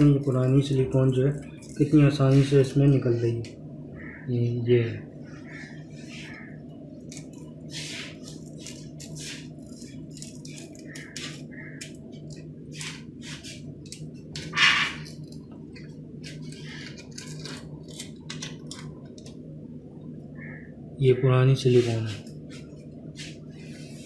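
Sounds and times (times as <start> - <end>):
steady low hum: 0.0 - 24.0
paint scraper scraping sealant: 7.7 - 10.6.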